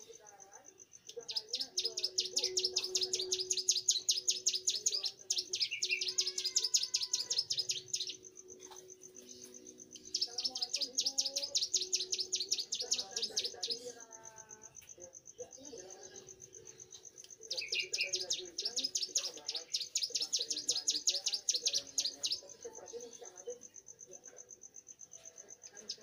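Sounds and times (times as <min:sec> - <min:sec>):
bird chattering trills: 0:01.1 - 0:14.0, 0:15.6 - 0:22.7.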